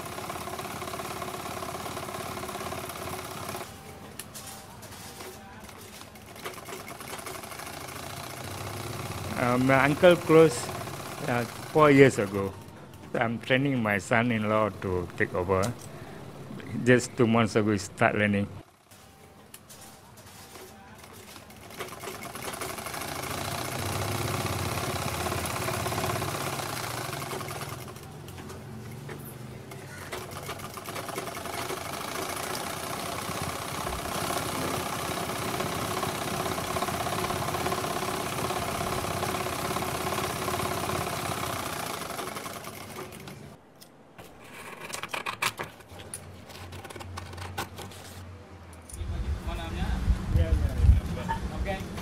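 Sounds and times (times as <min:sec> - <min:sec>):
sewing machine running: 0:00.0 - 0:04.2, 0:05.0 - 0:12.7, 0:20.5 - 0:43.6.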